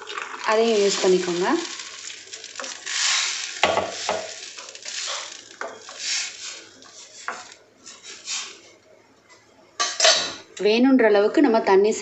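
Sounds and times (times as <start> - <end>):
paste sizzling in pan: 0.0 - 8.6
spatula scraping metal pan: 2.6 - 8.6.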